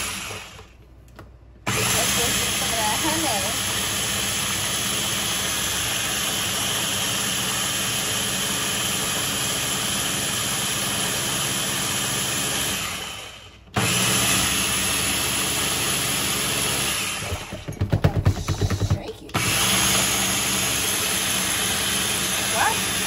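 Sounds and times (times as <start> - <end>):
electric blender motor: 0.0 - 0.8, 1.7 - 23.0.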